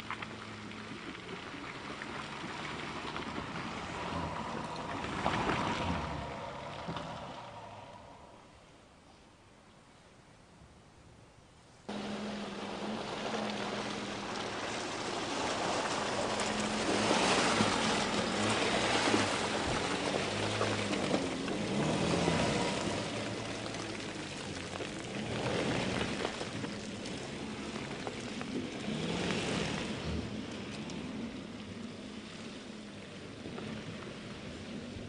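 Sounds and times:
tyres splashing through mud: 0.0 - 8.3, 11.9 - 35.0
diesel engine working: 11.9 - 35.0.

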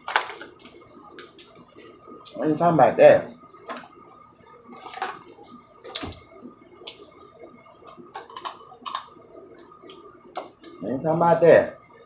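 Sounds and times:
crab shells cracking: 8.2 - 9.1.

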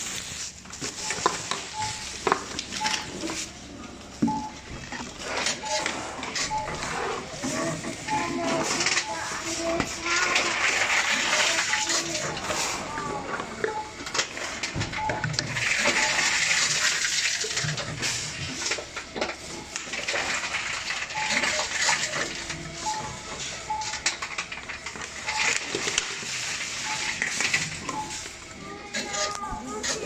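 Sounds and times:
short beeps: 2.8 - 3.2, 4.2 - 4.6, 5.6 - 7.0
plastic bottles rattling: 4.2 - 23.4, 24.0 - 30.0.

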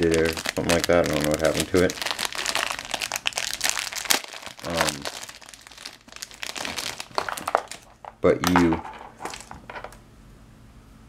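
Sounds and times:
plastic bag crinkling: 0.0 - 10.0.

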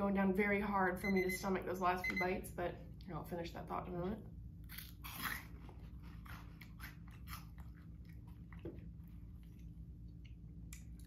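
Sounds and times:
person chewing crunchy snack: 4.6 - 9.7.

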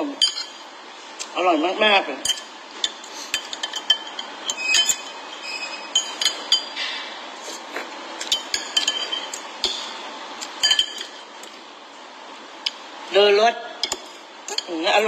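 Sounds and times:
metal utensil clinking against bowl: 0.2 - 0.6, 2.2 - 5.2, 5.9 - 6.8, 8.2 - 9.9, 10.5 - 11.2.

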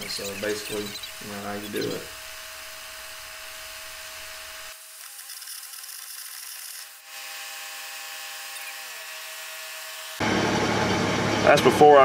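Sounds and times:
machine hum: 0.0 - 4.9, 10.2 - 11.7
carbon arc gouging hiss: 0.0 - 7.0.

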